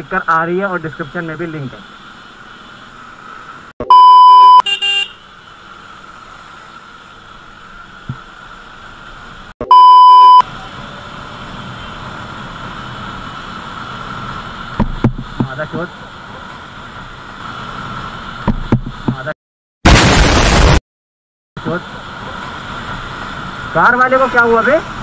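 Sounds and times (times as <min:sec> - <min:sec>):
censor bleeps: 0:03.8 - 0:04.6, 0:09.6 - 0:10.5.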